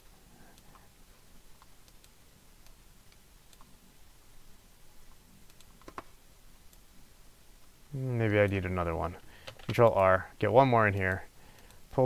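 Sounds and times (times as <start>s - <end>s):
low steady hiss: 0.0s - 12.0s
computer mouse clicks: 1.6s - 3.7s, 5.1s - 6.1s, 11.0s - 11.8s.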